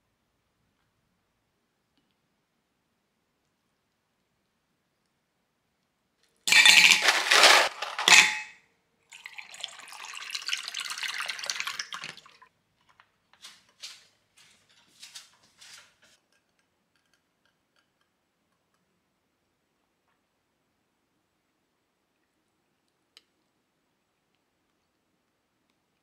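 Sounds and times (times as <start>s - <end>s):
loud clatter: 6.5s - 8.5s
tea pouring into a glass mug: 9.1s - 12.4s.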